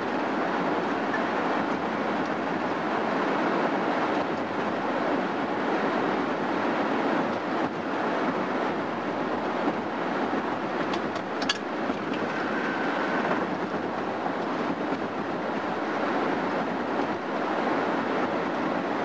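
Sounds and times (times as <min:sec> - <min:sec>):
car road and wind noise: 0:00.0 - 0:19.0.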